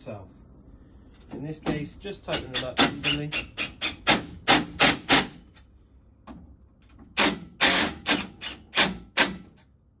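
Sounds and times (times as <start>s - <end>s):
cordless drill tightening bolts: 7.2s - 9.3s.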